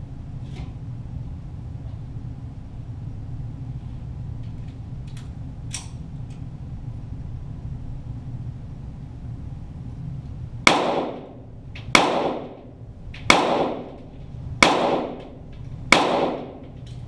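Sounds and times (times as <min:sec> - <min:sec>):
pistol shots: 0:10.7 - 0:14.0, 0:14.6 - 0:16.8.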